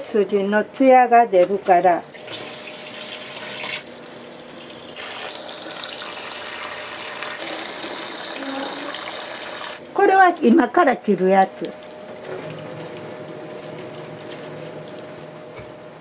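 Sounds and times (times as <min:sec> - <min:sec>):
water running into a pot: 0:02.1 - 0:10.5.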